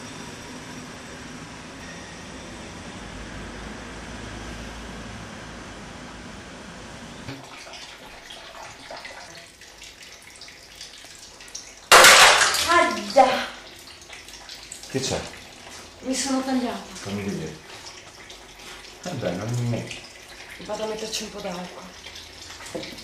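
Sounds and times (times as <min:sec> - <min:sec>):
faint running water: 0:07.2 - 0:23.0.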